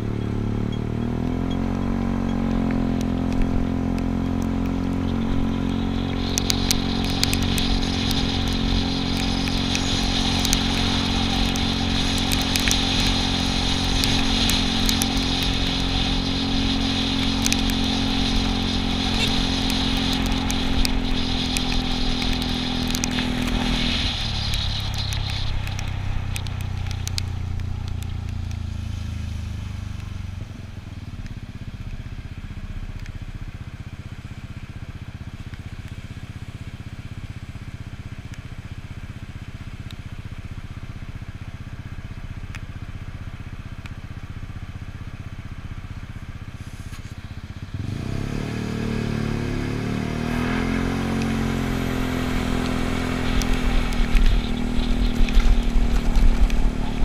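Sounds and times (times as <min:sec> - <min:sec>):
scooter engine cruising: 0:00.0 - 0:57.0
steady hiss: 0:05.3 - 0:30.3.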